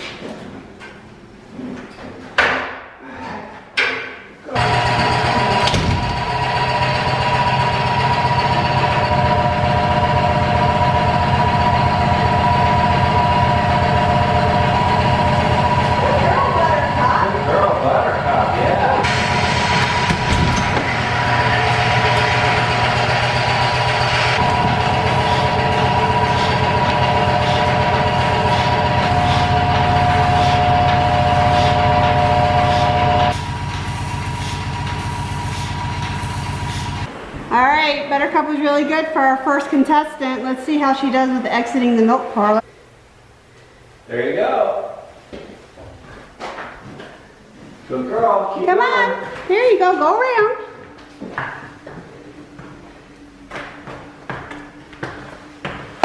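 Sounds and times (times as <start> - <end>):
vacuum pump pulsing and whining: 4.6 - 37.1.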